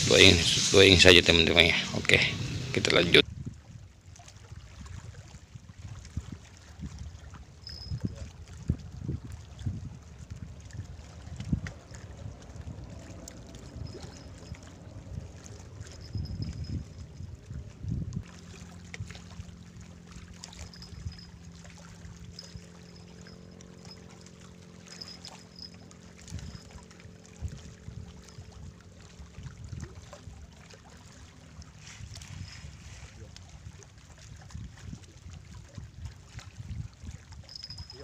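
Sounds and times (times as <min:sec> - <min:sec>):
boat engine drone: 0:00.0 - 0:03.2, 0:10.0 - 0:34.1
wind buffeting microphone: 0:00.0 - 0:03.9, 0:04.5 - 0:30.5, 0:31.6 - 0:38.0.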